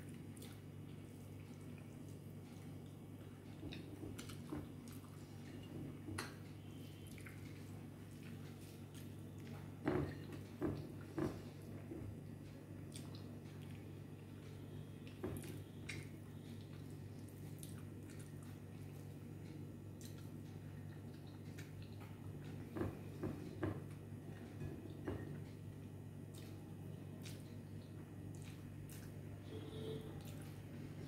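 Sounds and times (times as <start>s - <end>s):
chewing mouth sounds: 15.1s - 19.3s, 20.0s - 22.6s, 26.3s - 29.2s.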